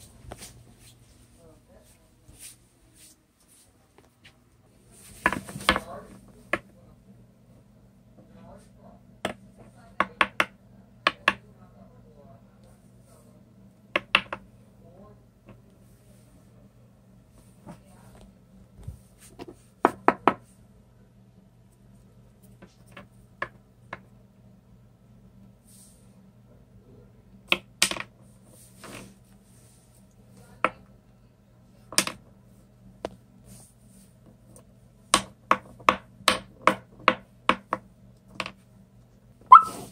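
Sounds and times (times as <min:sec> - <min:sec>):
crayon knocking on wooden shelf: 0:19.4 - 0:20.4.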